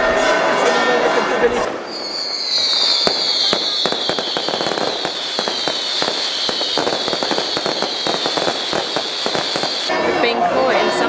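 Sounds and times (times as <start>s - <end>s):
firecracker bangs and crackles: 1.9s - 9.9s
high whistle sliding down: 1.9s - 9.9s.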